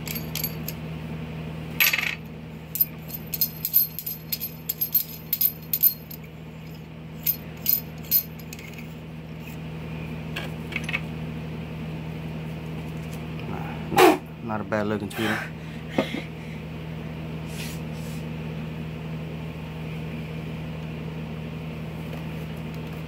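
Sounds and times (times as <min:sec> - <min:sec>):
small clicks and clinks of handling: 0:02.8 - 0:09.0.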